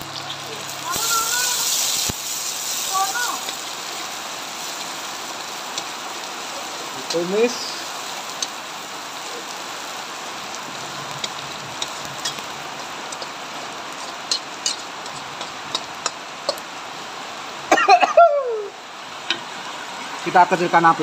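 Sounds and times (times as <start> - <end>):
sizzling in hot oil: 0.0 - 21.0
spatula clatter: 11.1 - 13.4, 14.0 - 16.6.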